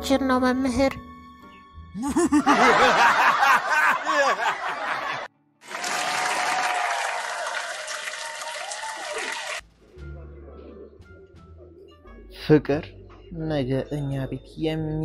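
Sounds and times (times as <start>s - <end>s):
audience laughter: 2.0s - 5.3s
crowd applause: 2.5s - 9.6s.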